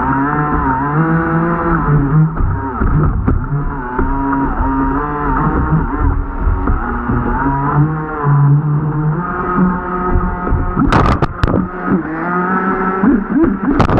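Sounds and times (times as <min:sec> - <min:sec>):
model boat motor running: 0:00.0 - 0:13.9.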